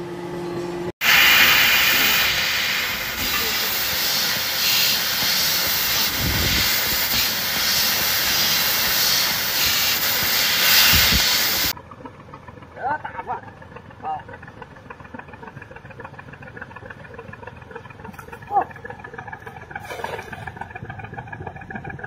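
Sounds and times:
gas hissing from nozzle: 1.0s - 11.7s.

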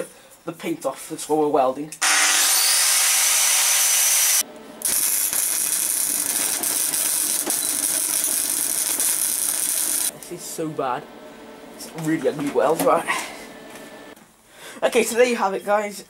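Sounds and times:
arc welding crackle: 4.0s - 10.2s.

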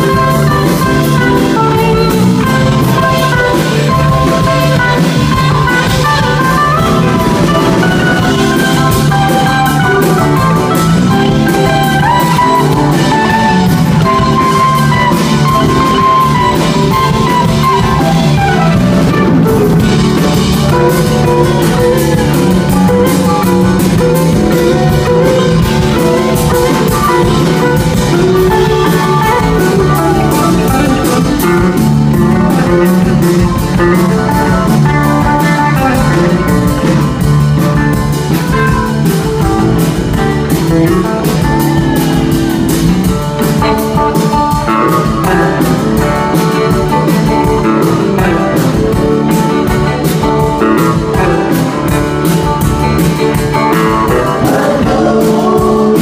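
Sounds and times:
electric guitar: 0.0s - 56.0s
rock band playing instrumental: 0.0s - 56.0s.

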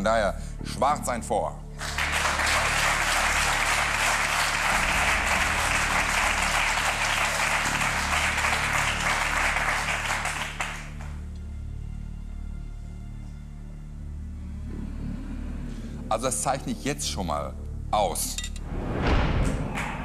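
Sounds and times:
background music: 0.0s - 20.0s
audience applauding: 1.8s - 11.3s, 19.4s - 20.0s.

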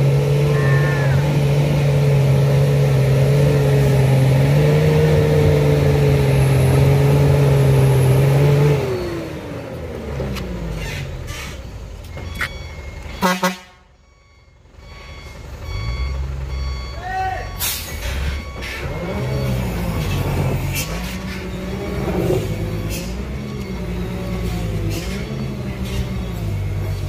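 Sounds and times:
truck diesel engine labouring: 0.0s - 27.0s.

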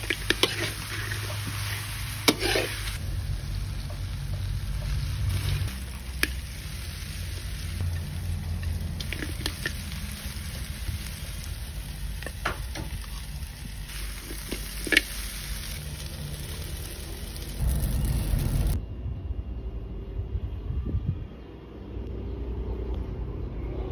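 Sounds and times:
metal spatula scraping a wok: 0.0s - 3.0s
food sizzling in a wok: 0.0s - 18.8s
low rumble: 2.8s - 23.6s.

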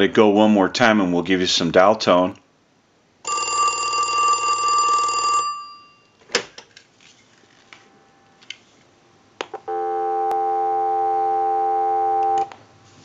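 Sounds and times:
telephone dial tone: 3.3s - 5.9s, 9.7s - 12.5s
telephone bell ringing: 3.3s - 6.2s, 9.7s - 12.4s.

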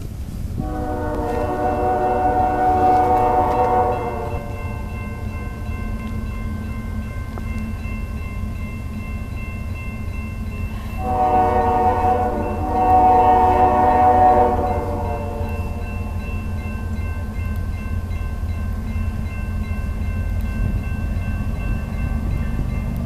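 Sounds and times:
distant train air horn: 0.6s - 5.2s, 10.7s - 16.2s.

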